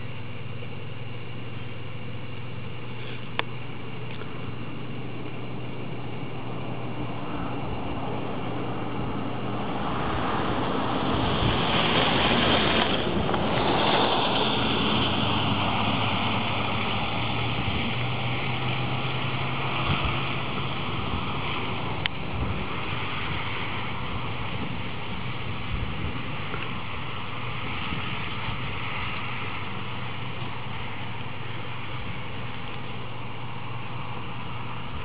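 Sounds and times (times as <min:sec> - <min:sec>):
low hum: 0:00.0 - 0:35.0
outdoor rushing noise: 0:03.9 - 0:35.0.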